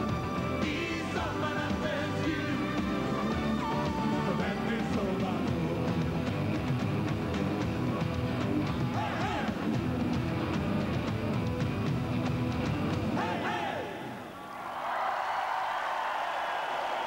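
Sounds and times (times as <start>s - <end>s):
rock music with drum beat: 0.0s - 13.2s.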